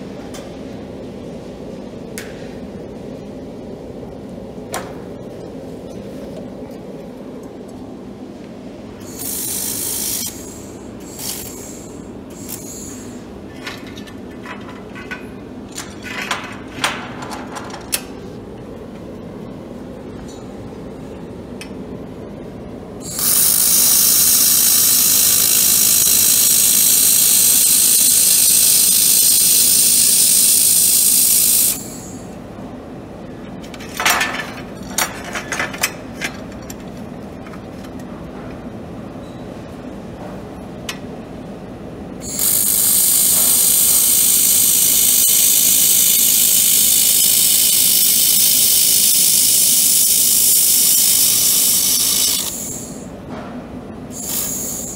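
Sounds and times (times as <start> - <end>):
laser welding torch hissing: 9.0 - 13.3, 23.0 - 32.2, 42.2 - 53.1, 54.2 - 54.9
metal clanks and rattles: 33.6 - 38.1.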